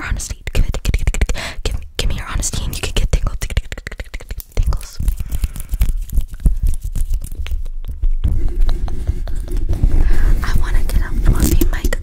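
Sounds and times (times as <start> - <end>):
nails clicking and scratching: 0.0 - 12.0
hands rubbing over microphone: 2.5 - 12.0.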